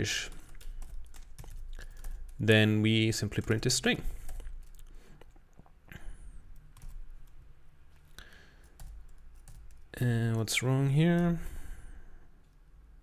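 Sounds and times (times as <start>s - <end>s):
laptop keyboard typing: 0.0s - 2.5s, 6.4s - 7.5s, 8.2s - 10.5s.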